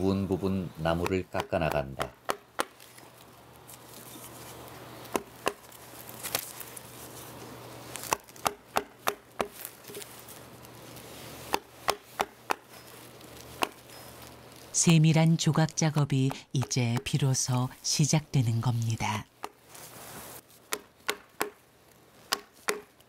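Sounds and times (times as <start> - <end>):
mallet striking chisel into wood: 1.0 - 2.7, 8.1 - 9.6, 11.5 - 12.6, 20.7 - 21.6, 22.3 - 22.9.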